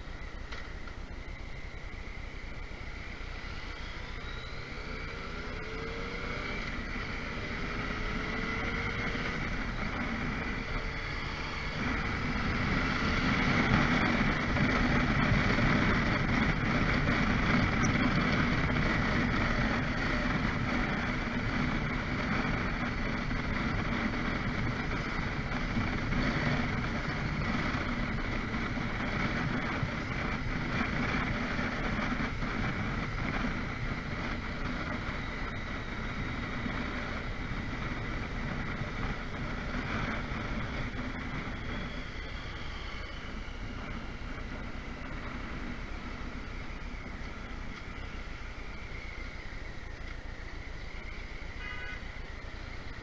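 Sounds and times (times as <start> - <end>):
motorcycle engine: 0.0 - 53.0.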